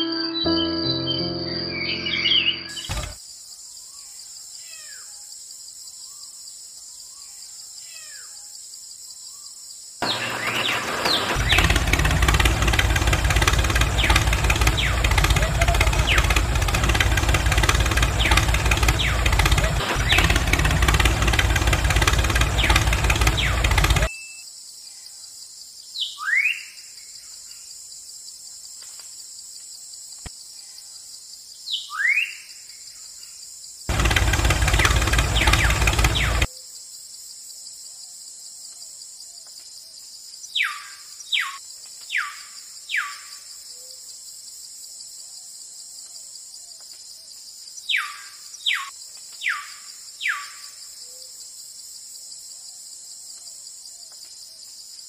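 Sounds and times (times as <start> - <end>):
tractor engine running: 2.7 - 3.2, 10.0 - 24.1, 33.9 - 36.5
crickets chirring: 20.6 - 55.0.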